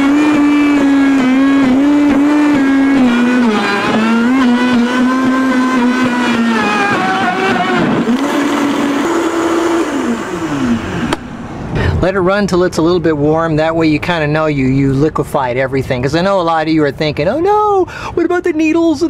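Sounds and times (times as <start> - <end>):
blender motor whine: 0.0 - 11.4.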